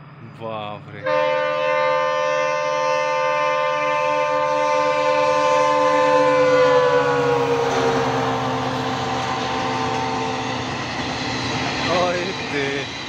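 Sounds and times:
passing train rumble: 0.0 - 13.0
locomotive horn blast: 1.0 - 10.8.

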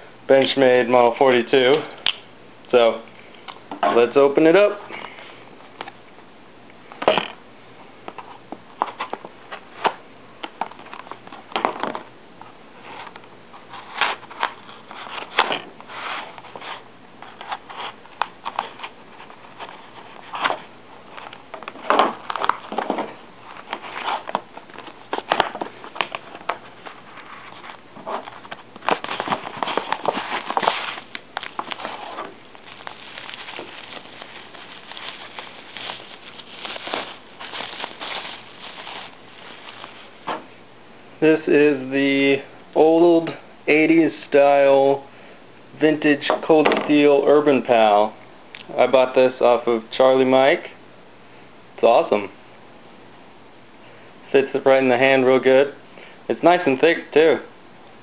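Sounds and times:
bubble wrap crinkling: 8.1 - 40.6
paper crinkling and rustling: 12.8 - 40.5.

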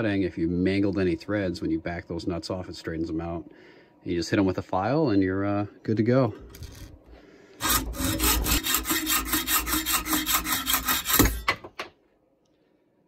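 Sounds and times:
hacksaw cutting metal rod: 7.6 - 11.7.

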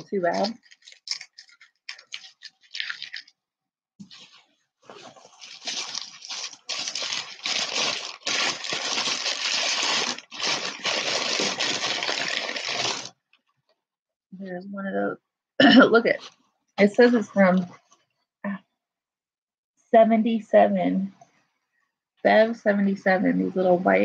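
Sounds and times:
packing paper crinkling: 0.0 - 3.4, 4.0 - 13.2.

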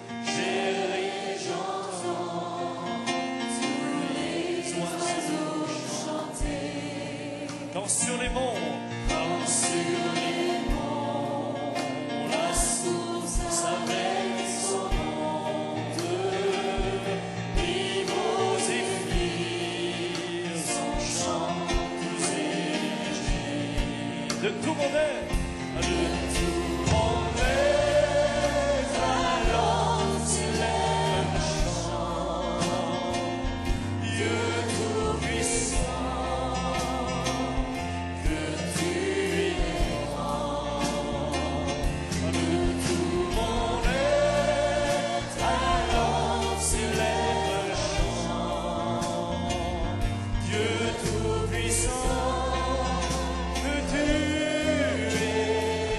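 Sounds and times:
congregation singing a hymn: 0.0 - 55.9
instrumental accompaniment: 0.0 - 55.9
deep bass notes: 25.2 - 55.9.

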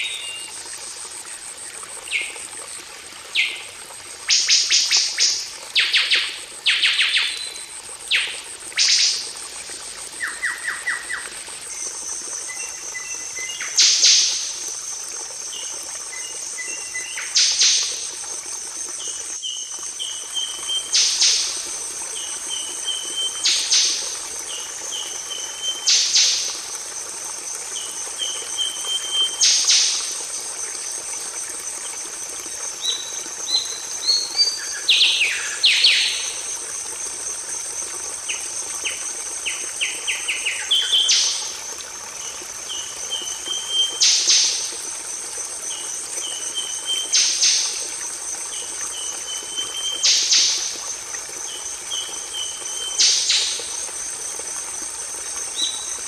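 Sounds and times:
songbird singing: 32.8 - 36.4, 38.3 - 41.5, 42.2 - 44.5.

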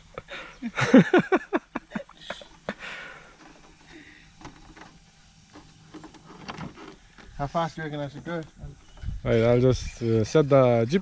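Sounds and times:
person laughing: 0.1 - 3.0.

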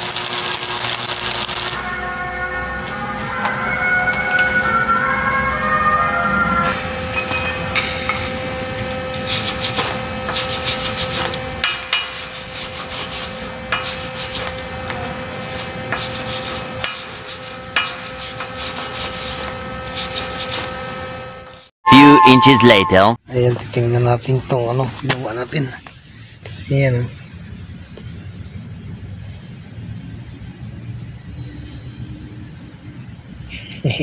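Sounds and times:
ringing tones: 6.4 - 9.3, 21.8 - 23.2
wire brush scrubbing metal: 9.1 - 20.8.

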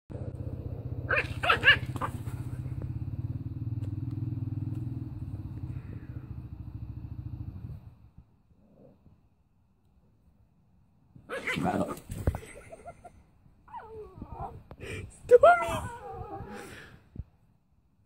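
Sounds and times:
low throbbing growl: 0.1 - 8.2
puppy yapping: 1.1 - 2.6.

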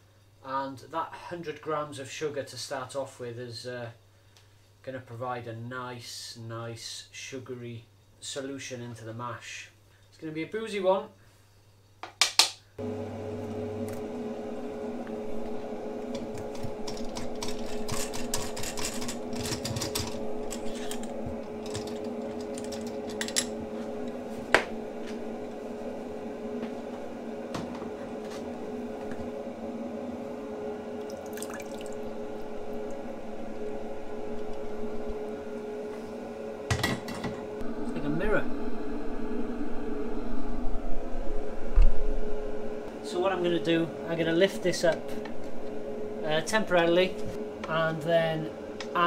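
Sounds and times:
pump humming: 12.8 - 49.0
liquid pouring and trickling: 31.0 - 33.1.

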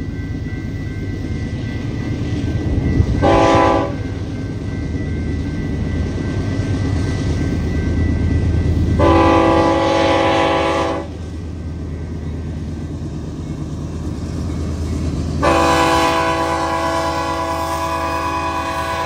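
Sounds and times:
locomotive horn blasts: 3.2 - 4.0, 9.0 - 11.2, 15.4 - 19.0.

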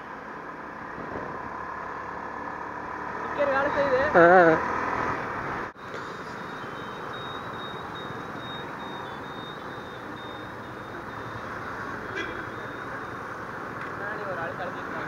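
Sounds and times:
motorcycle and road traffic: 0.0 - 15.0
short high-pitched beep: 6.4 - 11.4.

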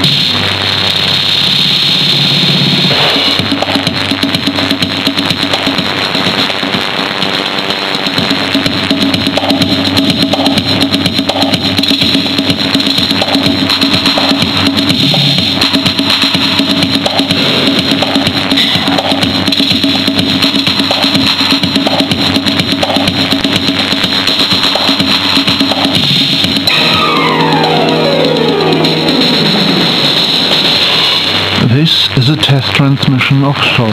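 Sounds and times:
muffled radio music with drums: 0.0 - 33.9.

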